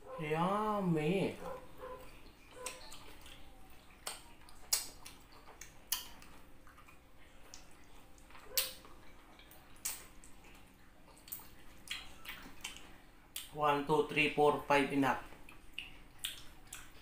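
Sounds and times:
quiet chewing: 0:01.4 - 0:13.6, 0:15.2 - 0:17.0
wet lip smacks and clicks: 0:02.6 - 0:13.6, 0:15.4 - 0:17.0.

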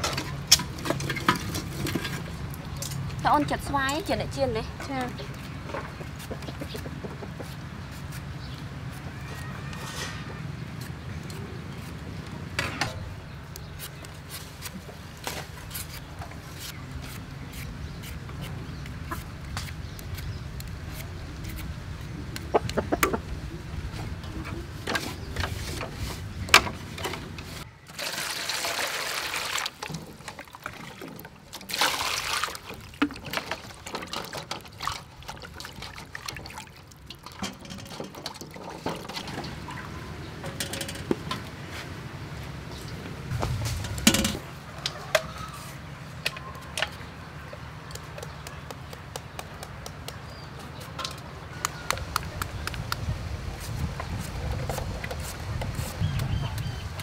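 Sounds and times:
chickens clucking: 0:04.9 - 0:08.0, 0:22.4 - 0:25.4
peeler scraping mangoes: 0:13.6 - 0:23.0, 0:53.5 - 0:56.8
water splashing: 0:27.9 - 0:39.8.

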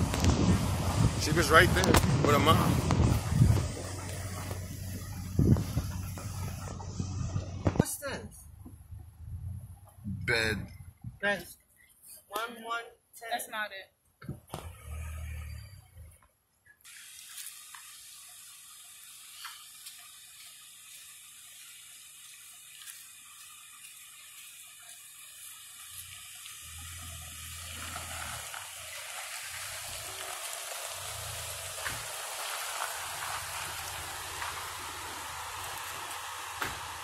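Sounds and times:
tyres crunching over gravel: 0:00.0 - 0:07.9, 0:22.5 - 0:37.0
low rumbles: 0:00.0 - 0:11.3
steady hiss: 0:16.9 - 0:37.0.

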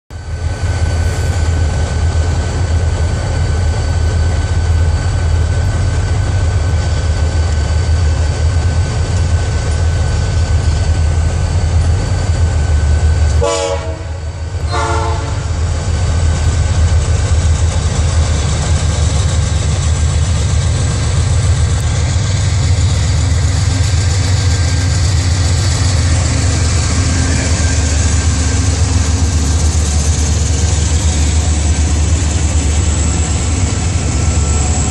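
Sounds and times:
diesel locomotive engine rumble: 0:00.1 - 0:34.9
steady whine: 0:00.2 - 0:34.9
train horn blasts: 0:13.4 - 0:15.6.

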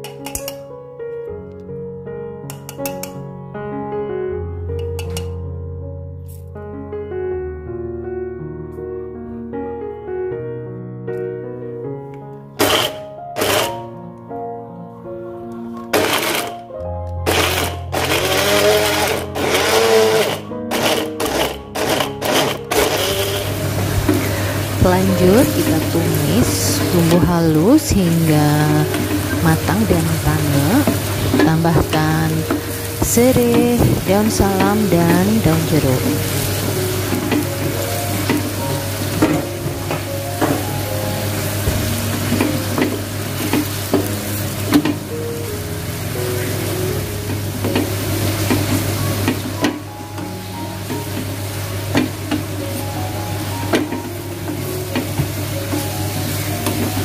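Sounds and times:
background music: 0:00.0 - 0:57.0
electric blender grinding: 0:12.6 - 0:13.9, 0:15.9 - 0:45.0
paste sizzling in oil: 0:15.9 - 0:16.6, 0:17.2 - 0:57.0
spatula scraping a pan: 0:17.3 - 0:24.6.

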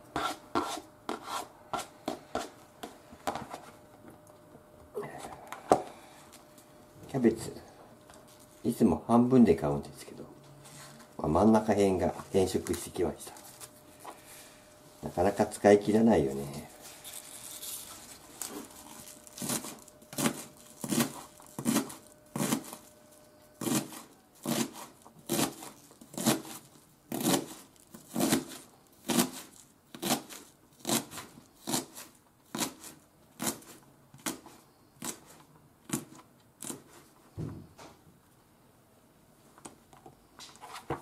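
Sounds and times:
knife chopping cabbage on board: 0:19.4 - 0:22.8, 0:23.6 - 0:37.0.

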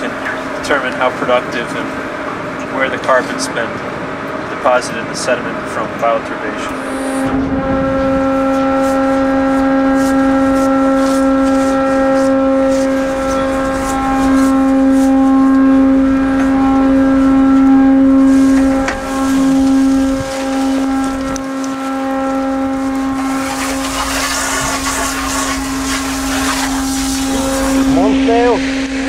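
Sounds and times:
deck machinery humming: 0:00.0 - 0:29.0
spray hose hissing: 0:08.5 - 0:15.4, 0:18.2 - 0:28.1.

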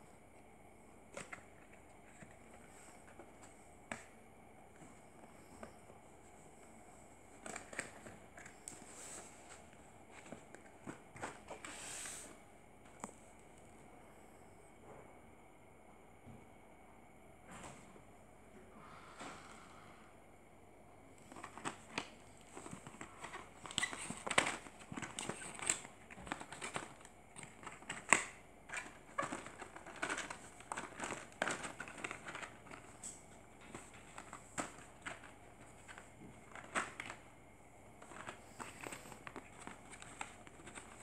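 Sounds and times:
plastic packaging crinkling: 0:21.2 - 0:37.3, 0:37.9 - 0:41.0.

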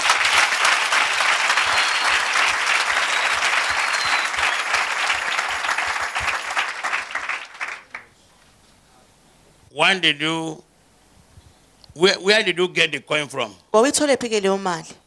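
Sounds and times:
crowd applauding: 0:00.0 - 0:08.2.

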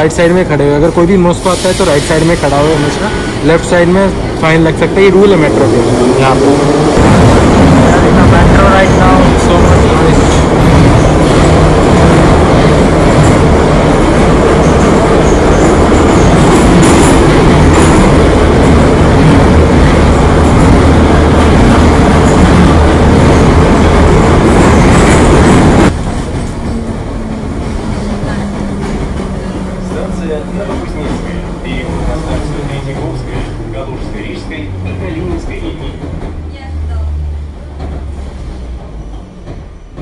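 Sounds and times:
train wheels and motors rumbling: 0:00.0 - 0:40.0.

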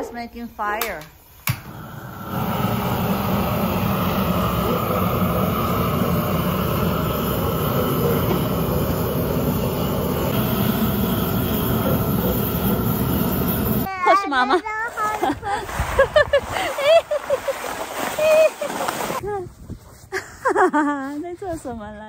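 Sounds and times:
torch ignition click: 0:00.8 - 0:02.6
rush of burning gas: 0:01.5 - 0:13.9.

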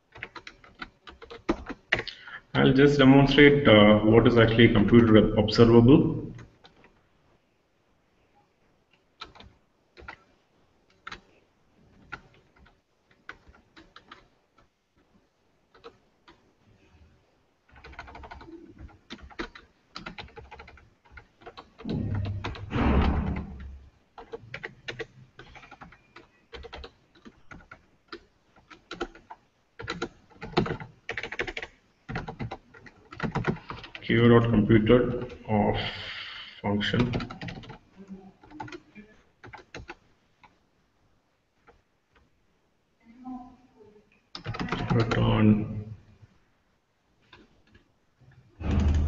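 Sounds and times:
keyboard typing: 0:00.1 - 0:02.3, 0:09.2 - 0:10.3, 0:10.9 - 0:11.3, 0:11.9 - 0:15.1, 0:15.7 - 0:16.4, 0:17.7 - 0:34.0, 0:36.9 - 0:40.6, 0:44.3 - 0:45.4, 0:48.6 - 0:49.0.

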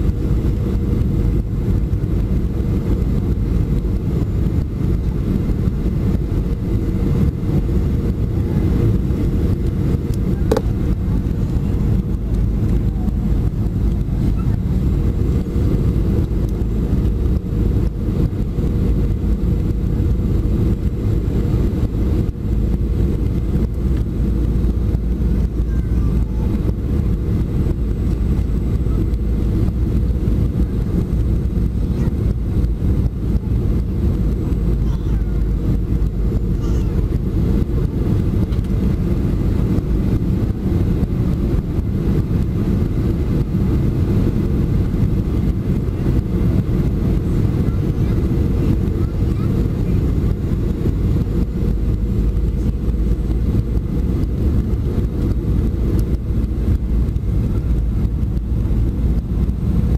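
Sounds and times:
airplane cabin engine rumble: 0:00.0 - 0:59.9.

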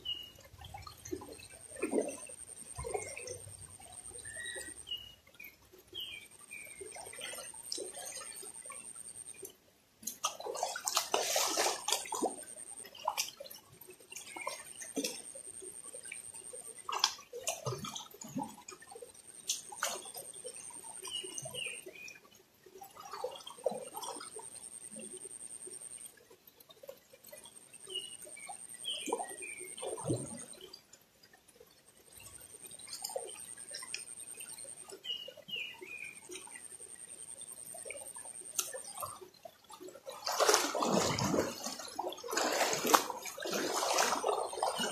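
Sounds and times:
water splashing while wading: 0:00.1 - 0:04.7, 0:10.2 - 0:22.0, 0:31.9 - 0:44.9.

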